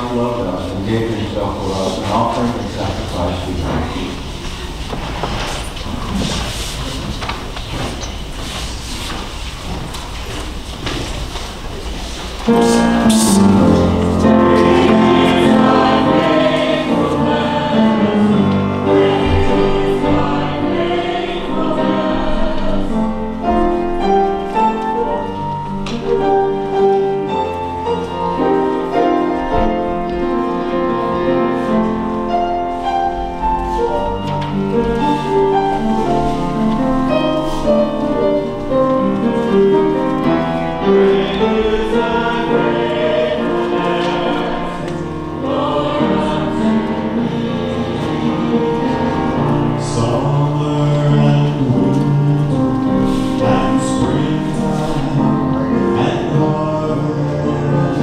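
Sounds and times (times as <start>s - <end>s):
choir singing a hymn: 12.4s - 58.0s.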